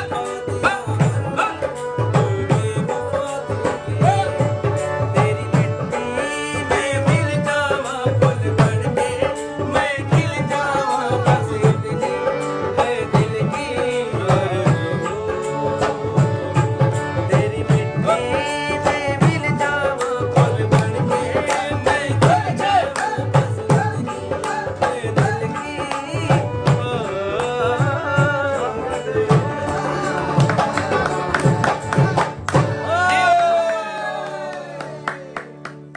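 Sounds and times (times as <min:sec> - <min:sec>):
person singing folk song: 0:00.0 - 0:35.9
hand drum beat: 0:15.9 - 0:28.6, 0:29.2 - 0:33.5.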